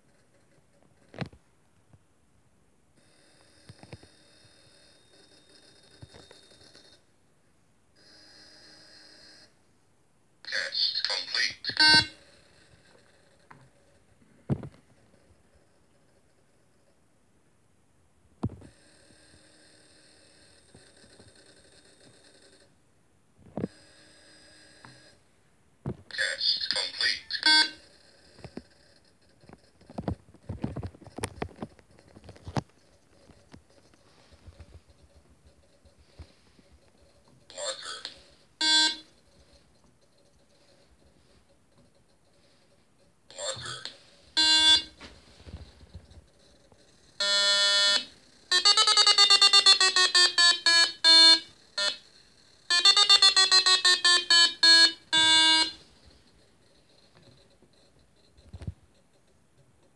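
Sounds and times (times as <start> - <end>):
electronic beeps from small speaker: 11.0 - 12.2.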